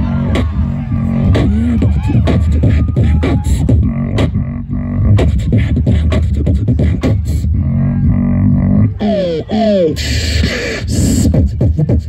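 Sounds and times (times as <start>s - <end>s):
beatboxing vocal drum hits: 1.2s - 7.6s, 8.2s - 12.0s
low hummed tone: 7.4s - 9.3s.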